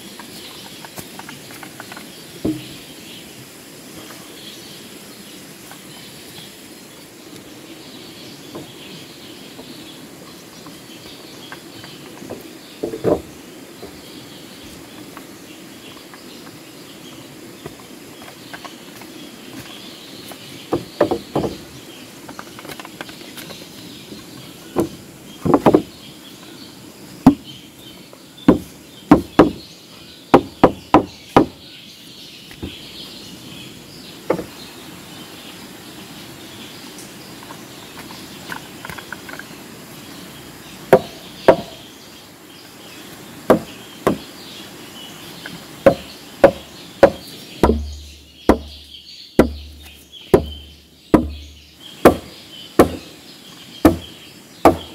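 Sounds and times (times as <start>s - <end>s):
tool striking wood: 2.4s - 2.8s, 12.3s - 13.3s, 20.7s - 21.6s, 24.8s - 25.9s, 28.5s - 29.6s, 30.3s - 31.6s, 34.3s - 34.6s, 40.9s - 41.8s, 43.5s - 44.3s, 45.4s - 48.8s, 49.4s - 53.1s, 53.8s - 54.9s.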